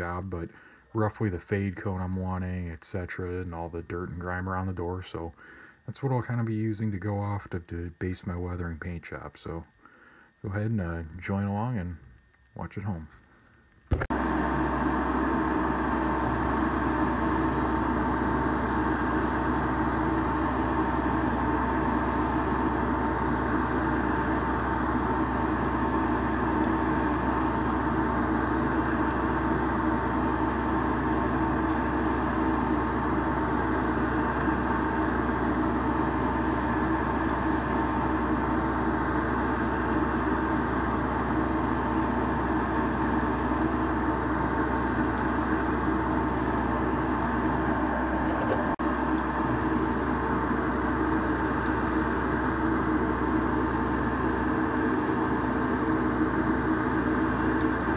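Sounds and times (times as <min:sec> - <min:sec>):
constant hiss: 0:00.0 - 0:14.0
electric motor droning: 0:14.1 - 0:46.6, 0:49.2 - 0:57.9.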